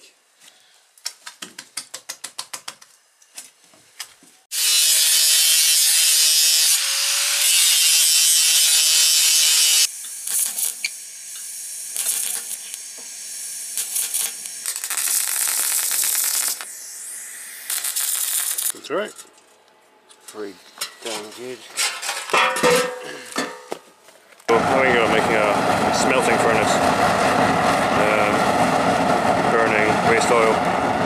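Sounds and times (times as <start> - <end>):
angle grinder grinding metal: 4.5 - 18.8
stick welder crackling hiss: 4.6 - 18.8.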